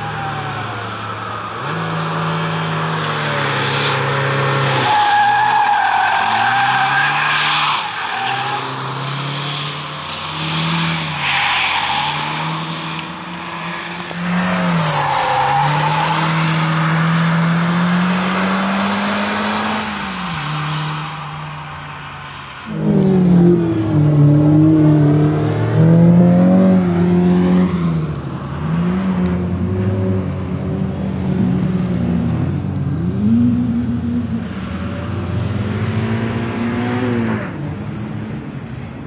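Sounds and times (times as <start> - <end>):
car engine revving: 1.6 - 21.2, 22.7 - 38.7
tyres squealing: 4.6 - 8.8.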